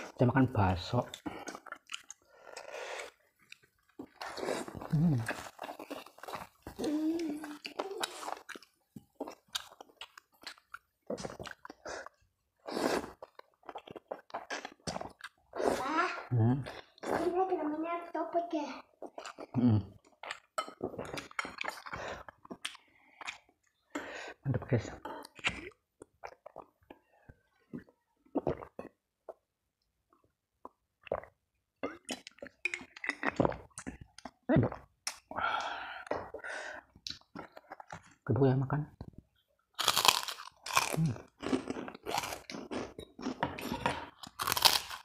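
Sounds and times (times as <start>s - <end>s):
chewing and mouth smacks: 1.1s - 6.8s, 19.0s - 23.8s
person chewing: 1.1s - 17.3s, 19.0s - 29.5s, 30.6s - 38.2s, 39.7s - 45.0s.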